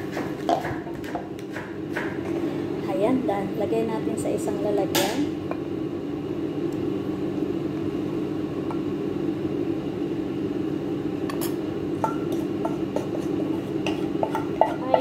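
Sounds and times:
steady low hum: 0.0 - 15.0
utensil scraping metal pot: 11.3 - 15.0.

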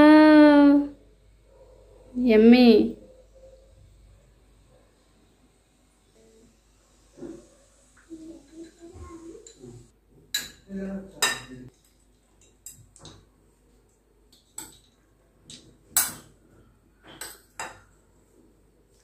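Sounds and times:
metal spoon clinking on bowls: 9.4 - 9.7, 10.3 - 11.7, 12.4 - 13.2, 14.3 - 16.3, 17.1 - 18.0.

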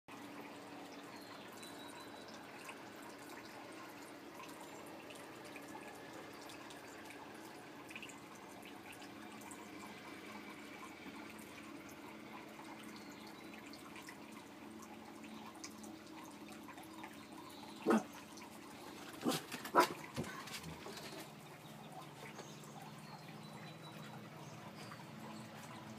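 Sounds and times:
water trickling and dripping: 0.1 - 25.9
dog barking: 17.8 - 18.1, 19.2 - 20.0.

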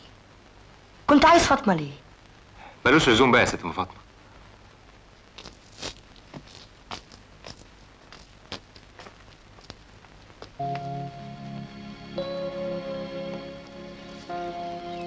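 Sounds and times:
film score music with held notes: 10.6 - 15.0.

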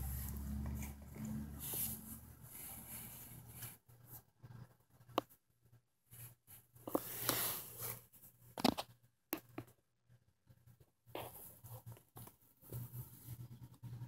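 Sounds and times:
soft rustling and brushing: 0.0 - 4.6, 6.1 - 8.5.

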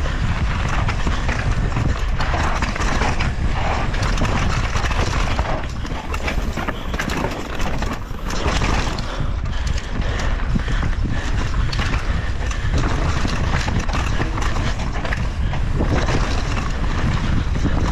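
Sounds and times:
bike chain and parts clattering: 0.0 - 10.3
wind buffeting microphone: 0.0 - 17.9
tyres on dirt: 2.6 - 9.0.

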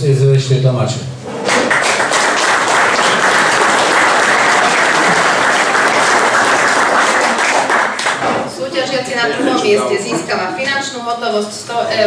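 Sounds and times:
audience applauding: 1.3 - 8.5.

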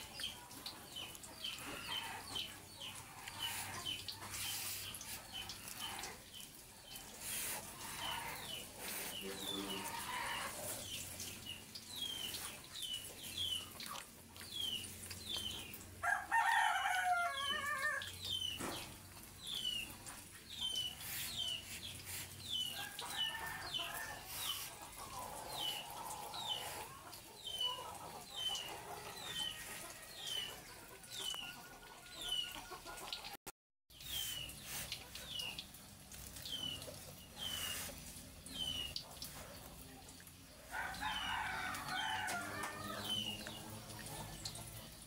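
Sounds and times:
chicken calls: 15.6 - 18.9
rooster crowing: 16.0 - 18.1, 40.7 - 43.2.

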